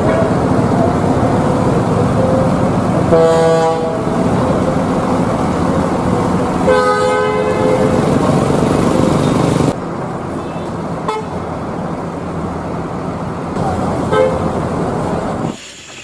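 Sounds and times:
bus engines running: 0.0 - 16.0
traffic: 0.0 - 16.0
vehicle horn blasts: 3.1 - 4.1, 6.6 - 8.0, 11.1 - 11.4, 14.1 - 14.5.

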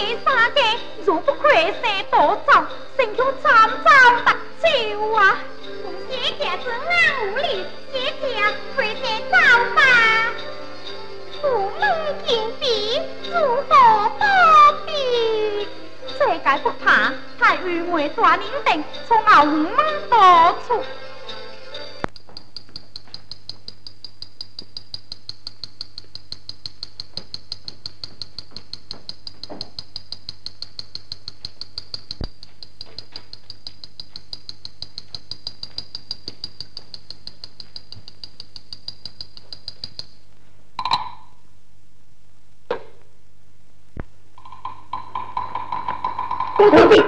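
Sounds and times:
fast even percussion tapping: 22.0 - 40.2
single percussion strikes: 40.8 - 41.4.

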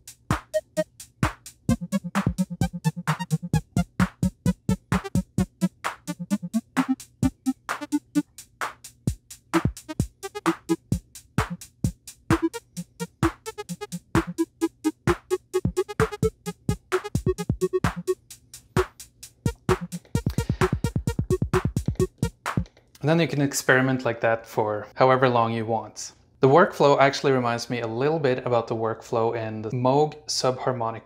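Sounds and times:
electronic synth pattern: 0.3 - 0.9, 1.7 - 8.3, 9.6 - 11.6, 12.3 - 18.2, 19.5 - 22.7
plucked synth notes: 1.7 - 8.2, 9.6 - 11.6, 12.3 - 18.2, 19.5 - 22.6
sharp percussive hits: 18.8 - 22.7.

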